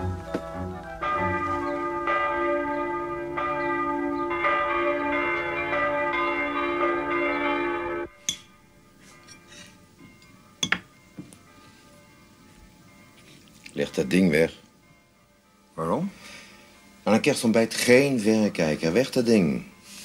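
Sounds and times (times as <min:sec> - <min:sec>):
bells ringing: 0:00.0 - 0:13.2.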